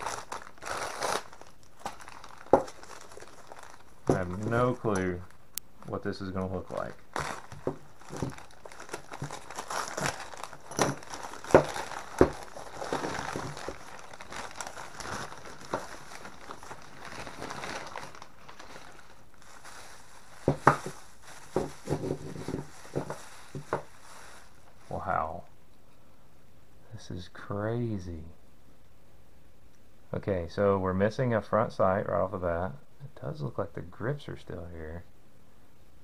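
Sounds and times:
newspaper crumpling: 0.0s - 5.2s, 6.4s - 25.0s
plastic bag rustling: 0.0s - 25.2s.

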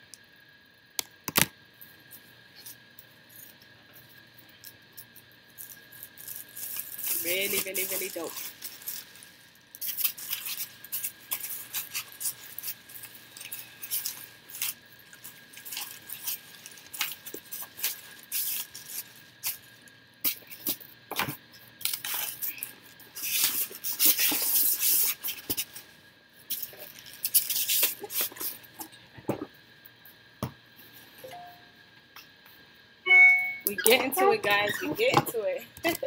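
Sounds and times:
packaging rustling: 5.6s - 19.7s.

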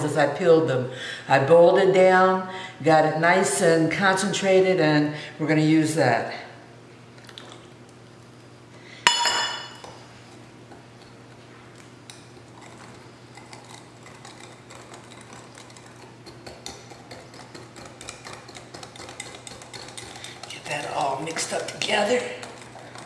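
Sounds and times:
metal cup clanking on stone counter: 9.1s - 9.8s
whisk ticking against glass bowl: 13.3s - 23.0s.

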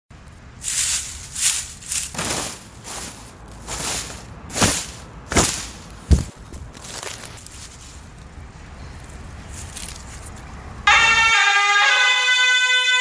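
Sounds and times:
dry leaves rustling and crackling: 0.5s - 10.7s
dull thump: 2.1s - 7.3s.

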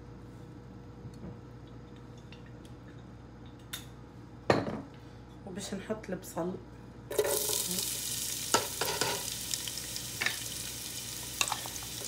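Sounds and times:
onion sizzling in hot oil: 7.1s - 12.0s.

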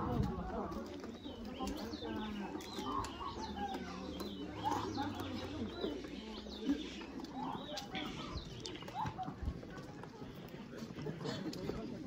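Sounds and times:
footsteps on concrete: 0.0s - 12.0s
murmur of voices: 0.0s - 12.0s
birds chirping: 0.2s - 9.6s.

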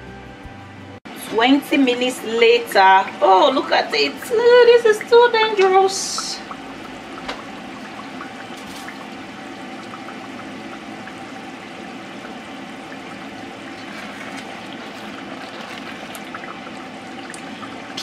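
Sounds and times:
stew bubbling with small pops: 4.2s - 18.0s
spatula stirring in pot: 12.9s - 17.6s.

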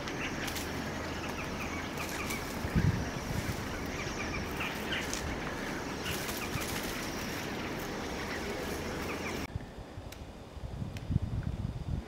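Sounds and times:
bird harsh calls: 0.0s - 9.5s
background hiss: 0.0s - 12.0s.

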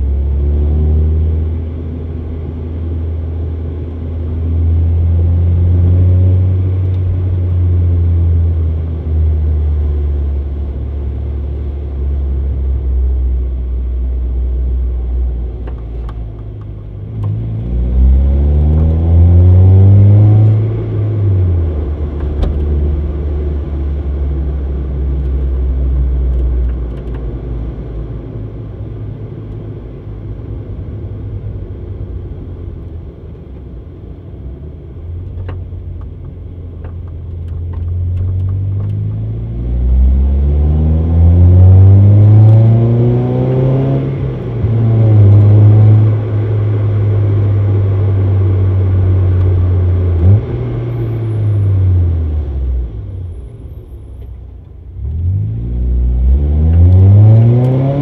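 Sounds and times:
car engine revving through exhaust: 16.9s - 26.7s, 37.6s - 53.1s, 55.0s - 58.0s.

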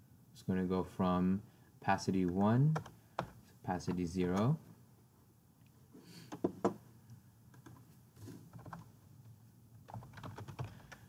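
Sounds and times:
computer keyboard keystrokes: 2.2s - 4.4s, 7.5s - 7.8s, 8.5s - 8.9s, 9.9s - 11.0s.

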